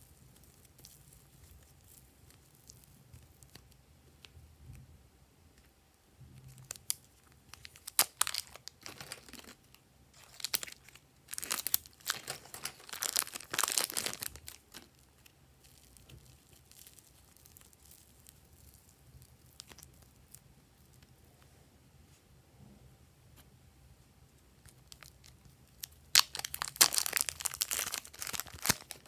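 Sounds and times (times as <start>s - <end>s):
plastic wrapper crackling: 0.0s - 4.3s, 6.4s - 21.2s, 24.6s - 29.0s.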